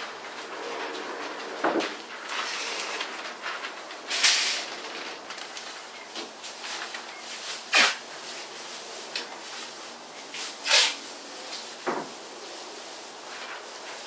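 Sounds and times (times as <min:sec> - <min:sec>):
paper and plastic crinkling: 0:00.0 - 0:14.0
sharp hissing rips: 0:07.5 - 0:08.1, 0:10.3 - 0:11.7.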